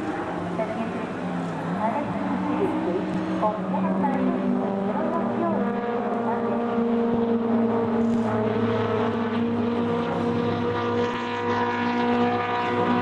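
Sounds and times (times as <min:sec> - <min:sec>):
distant car engine running hard: 0:00.0 - 0:13.0.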